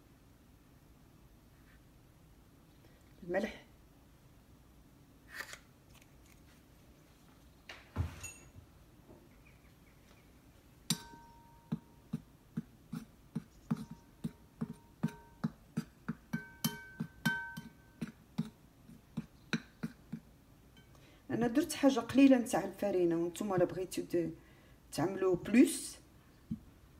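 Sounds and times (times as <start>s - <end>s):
bowl ringing: 8.2s - 8.6s, 10.9s - 11.9s, 16.3s - 17.9s
hand mixing flour in bowl: 11.7s - 20.4s.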